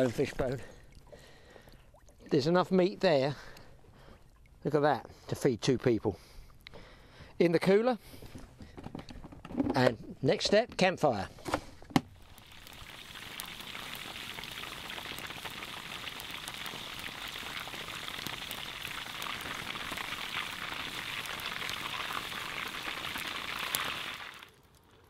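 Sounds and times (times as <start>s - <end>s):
deep-frying crackling sizzle: 12.1s - 25.0s.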